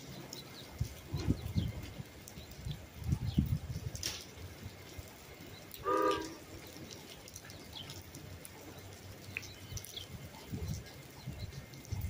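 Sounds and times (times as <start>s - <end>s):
train horn blast: 5.8s - 6.4s.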